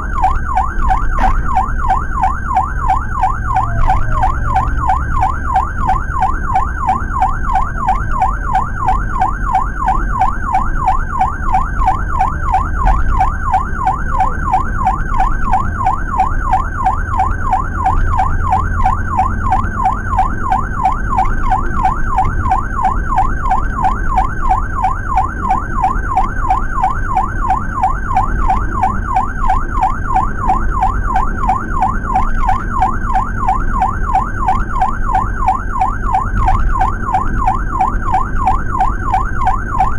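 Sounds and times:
ambulance siren warbling: 0.0 - 39.9
van engine and road noise: 0.0 - 39.9.

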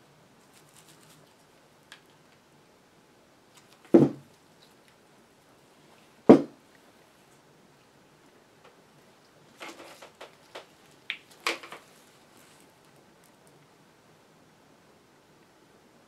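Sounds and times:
small clicks and rustles of parts: 3.5 - 5.0, 8.6 - 13.7
tool knocking on bench: 4.0 - 4.2, 6.3 - 6.5.

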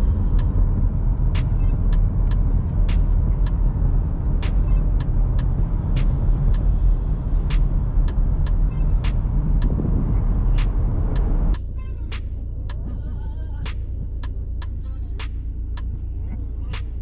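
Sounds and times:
sharp ticks: 0.0 - 6.7
car road and wind noise: 0.0 - 17.0.

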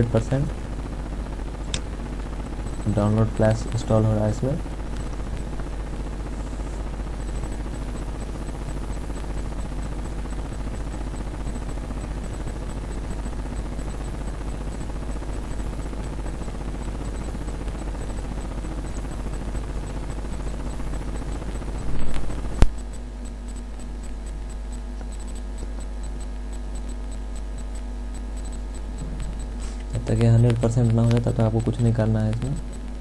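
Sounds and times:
low electrical hum: 0.0 - 33.0
sharp click: 1.7 - 4.0, 21.8 - 23.0, 23.7 - 33.0.

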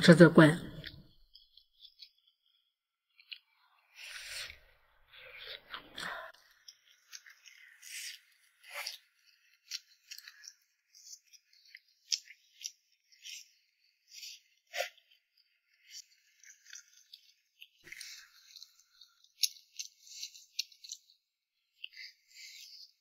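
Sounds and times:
chewing: 16.0 - 21.2.

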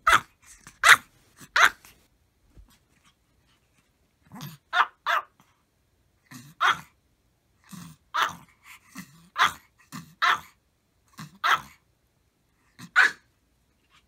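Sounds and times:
small dog barking: 0.0 - 2.0, 4.3 - 5.5, 6.4 - 7.0, 8.1 - 10.6, 11.2 - 11.8, 12.8 - 13.3.

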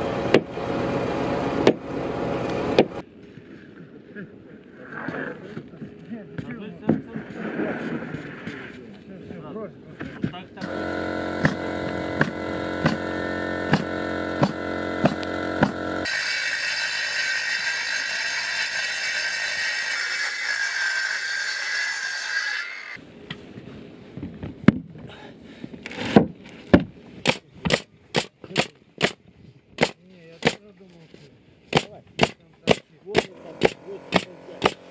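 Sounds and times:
pneumatic nailer firing: 10.6 - 20.6, 27.2 - 29.2, 29.8 - 30.6, 31.7 - 34.9
circular saw cutting wood: 10.6 - 23.0, 31.8 - 34.9.

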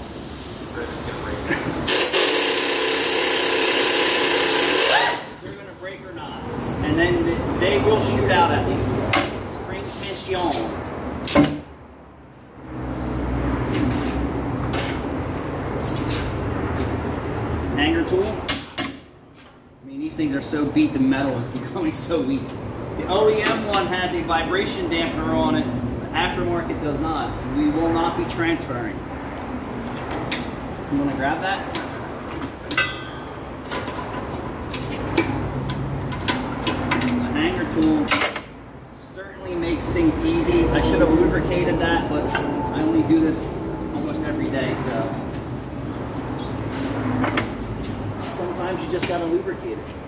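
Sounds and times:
air impact wrench burst: 1.8 - 5.4
low rumble: 39.8 - 45.7.

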